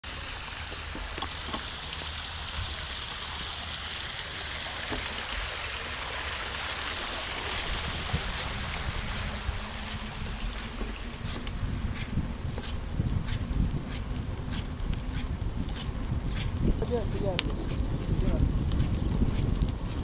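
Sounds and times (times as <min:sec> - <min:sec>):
fountain water splashing: 0:00.0 - 0:20.0
high bird chirps: 0:11.7 - 0:12.9.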